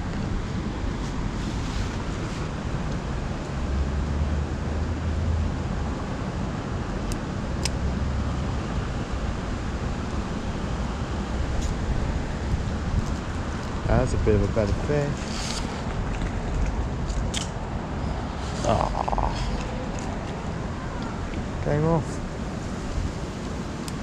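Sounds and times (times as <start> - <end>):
wind buffeting microphone: 8.8 - 23.8
stream rushing: 14.9 - 24.0.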